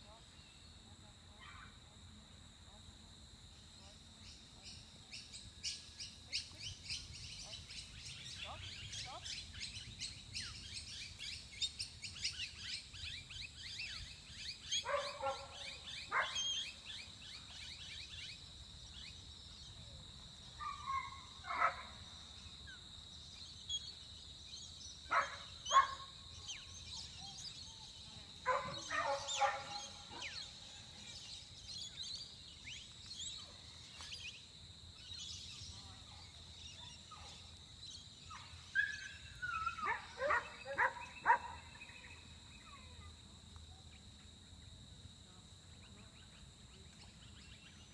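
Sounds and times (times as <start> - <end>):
distant dog barking: 14.8 - 16.4, 25.1 - 26.1, 28.5 - 30.4, 38.4 - 41.8
birds chirping: 25.1 - 34.4.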